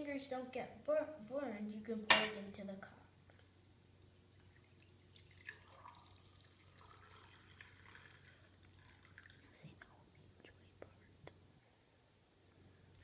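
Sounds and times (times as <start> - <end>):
coffee pouring into a mug: 3.8 - 9.6.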